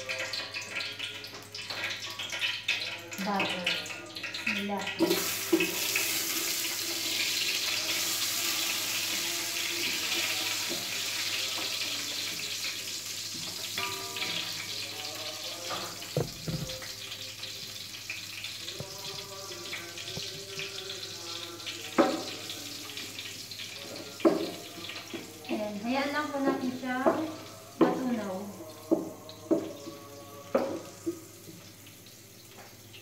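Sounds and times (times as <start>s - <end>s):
butter sizzling in a pot: 0.0s - 33.0s
wooden spatula knocking on pot: 16.1s - 16.8s, 28.9s - 29.8s, 30.5s - 31.2s.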